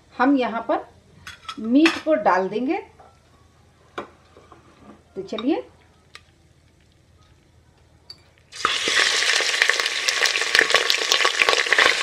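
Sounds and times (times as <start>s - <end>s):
meat dropping into hot oil: 8.5s - 12.0s
oil sizzling and crackling: 8.5s - 12.0s.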